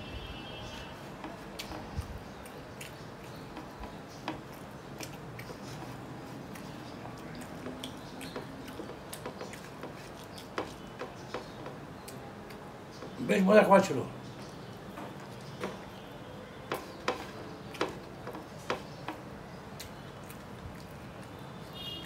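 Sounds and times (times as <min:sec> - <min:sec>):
fingers squishing and mixing rice: 0:00.8 - 0:13.2
chewing: 0:01.2 - 0:13.2, 0:19.8 - 0:21.7.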